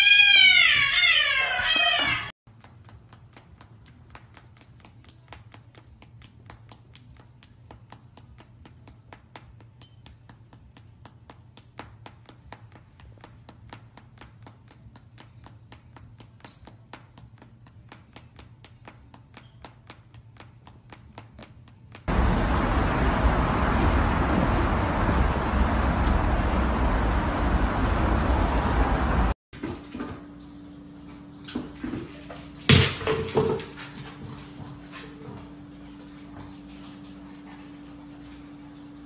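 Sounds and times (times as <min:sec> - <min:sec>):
cat yowling: 0:00.0 - 0:02.3.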